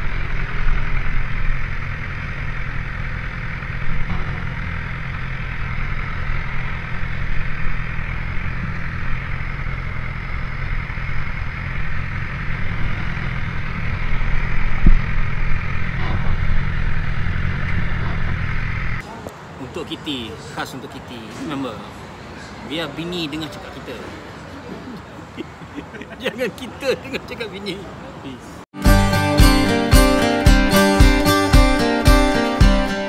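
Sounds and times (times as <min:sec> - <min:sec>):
motorcycle engine idling: 0:00.0 - 0:19.0.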